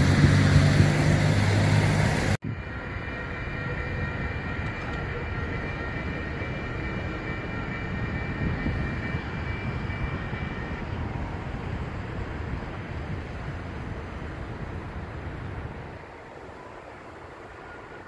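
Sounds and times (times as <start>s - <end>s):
wind noise: 0.0s - 18.0s
crossing warning bell ringing: 2.5s - 13.4s.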